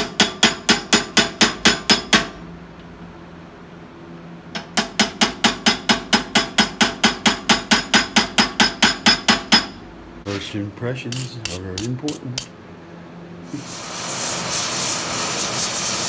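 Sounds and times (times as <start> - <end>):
hammer striking metal punch: 0.0 - 2.4, 4.5 - 9.8.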